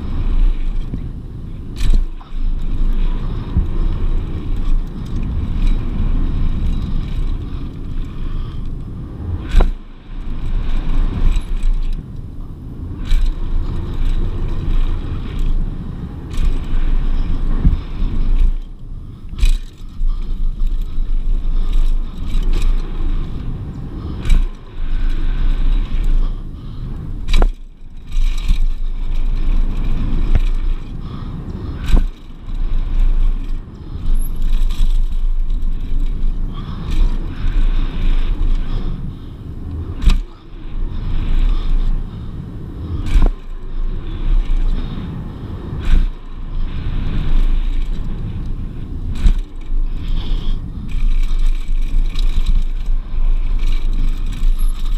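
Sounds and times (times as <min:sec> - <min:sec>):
bike knocking over bumps: 0:00.0 - 0:08.6, 0:09.3 - 0:12.1, 0:12.8 - 0:54.9
tyres on dirt: 0:00.0 - 0:54.9
wind rumbling on microphone: 0:00.0 - 0:54.9.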